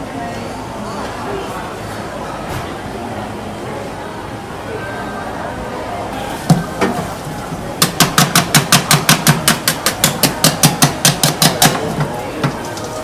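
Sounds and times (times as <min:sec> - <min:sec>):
kitchen tool knocking hard surface: 0:07.8 - 0:12.0.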